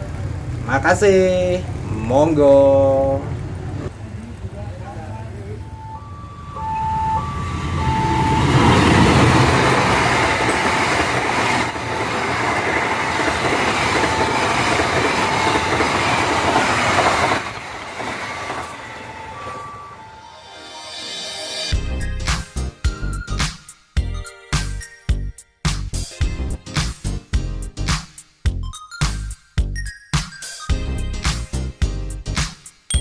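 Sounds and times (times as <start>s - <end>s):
train passing at speed: 3.2s - 21.8s
two-tone crossing warning bell: 5.2s - 17.0s, 17.7s - 21.3s.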